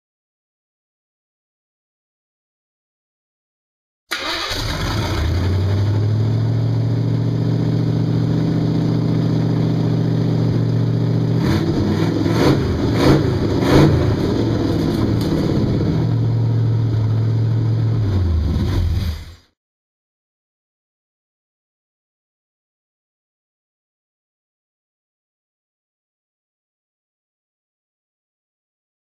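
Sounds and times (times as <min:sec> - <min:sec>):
car engine idling and revving: 0:04.4 - 0:19.3.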